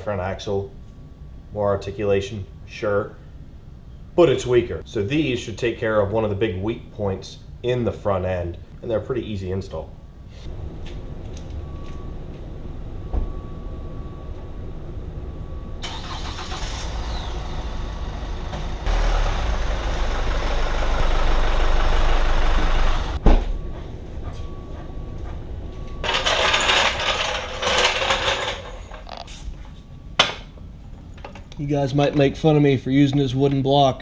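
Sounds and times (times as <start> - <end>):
diesel truck engine running: 15.8 - 23.2
clattering: 26.0 - 29.3.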